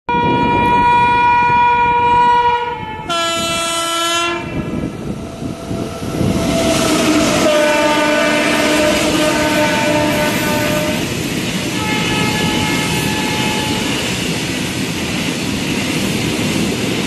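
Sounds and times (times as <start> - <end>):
locomotive horn: 0.1 - 4.7, 6.7 - 11.1, 11.7 - 14.0
train rumbling and clattering: 0.1 - 17.0.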